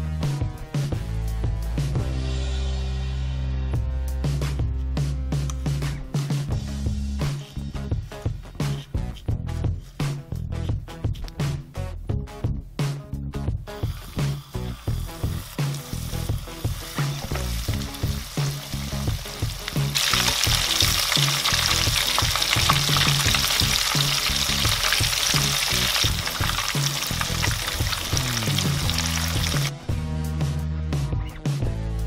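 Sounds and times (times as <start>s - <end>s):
background music bass line: 0.0s - 32.0s
food deep-frying in oil: 13.8s - 29.7s.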